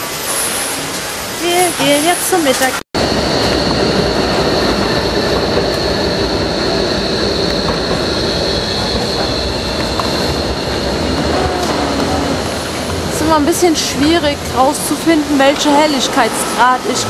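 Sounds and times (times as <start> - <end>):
city street rumble: 0.0 - 17.0
high-pitched whine: 0.0 - 17.0.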